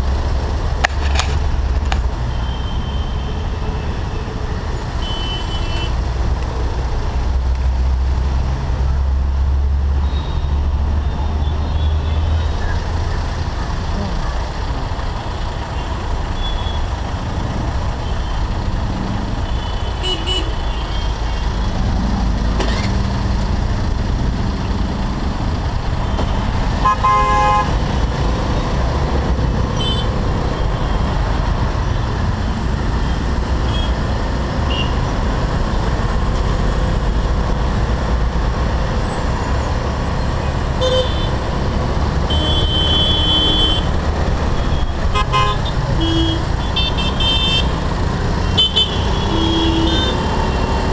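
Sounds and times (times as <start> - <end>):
road noise rumble: 0.0 - 50.9
vehicle horn toots: 42.3 - 43.9, 48.6 - 50.3.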